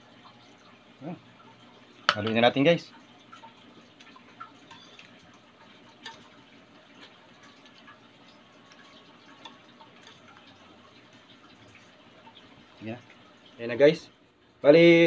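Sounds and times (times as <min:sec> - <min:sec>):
whisk ticking against glass: 0:03.3 - 0:13.2.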